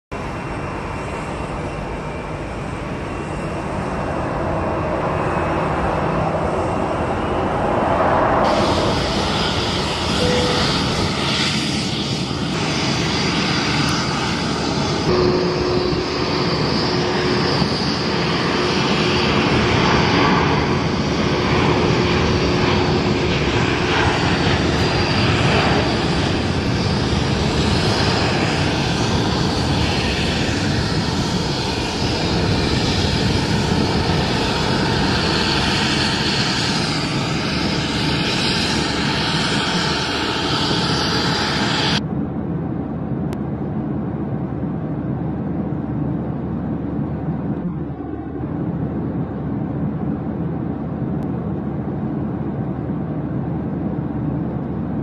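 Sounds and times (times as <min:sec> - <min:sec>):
jet engines running loud: 0:00.1 - 0:55.0.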